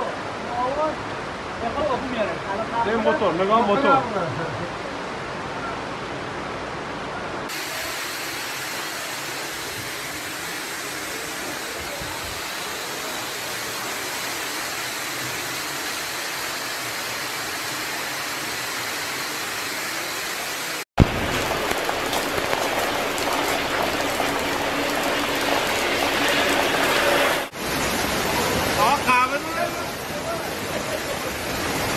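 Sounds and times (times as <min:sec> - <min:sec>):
floodwater rushing: 0:21.0 - 0:31.9.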